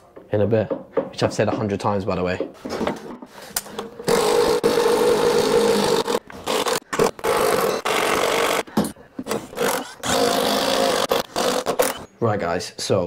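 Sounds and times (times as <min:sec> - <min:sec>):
power tool motor cutting: 0:04.1 - 0:08.7, 0:09.5 - 0:12.1.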